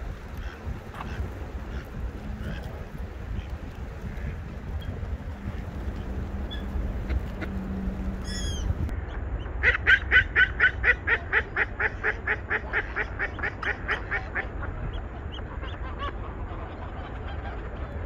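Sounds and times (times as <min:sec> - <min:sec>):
low steady rumble: 0:00.0 - 0:18.0.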